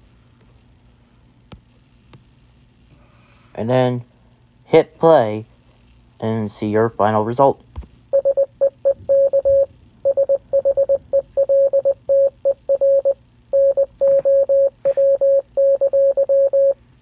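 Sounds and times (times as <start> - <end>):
morse code beeps: 8.1 - 16.8.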